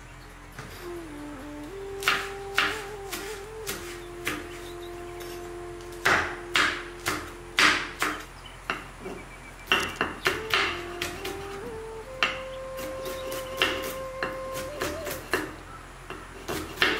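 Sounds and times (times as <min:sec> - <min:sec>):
knife chopping on wooden board: 0:16.1 - 0:16.9.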